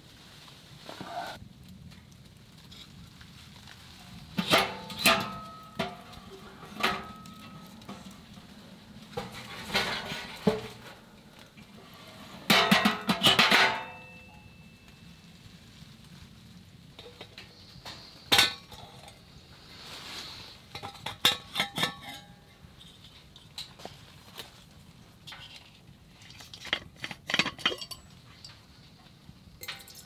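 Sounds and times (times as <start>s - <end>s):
logs knocking against steel firebox: 4.4s - 11.7s, 12.4s - 14.3s
metallic ring: 13.5s - 14.9s.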